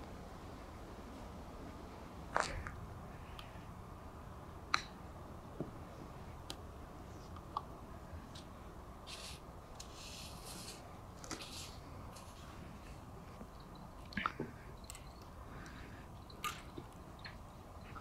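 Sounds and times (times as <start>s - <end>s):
short bursts of hiss: 9.1s - 10.8s.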